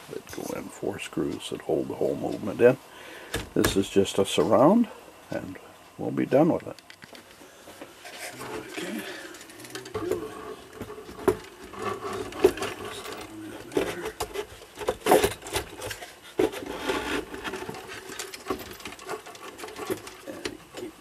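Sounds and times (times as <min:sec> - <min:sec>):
clock movement knocks and rattles: 0:09.3 - 0:21.0.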